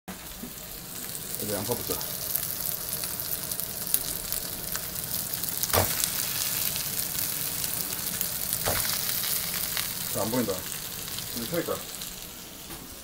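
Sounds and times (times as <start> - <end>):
sausages sizzling in a pan: 0.1 - 13.0
knock of food into pan: 5.7 - 6.0.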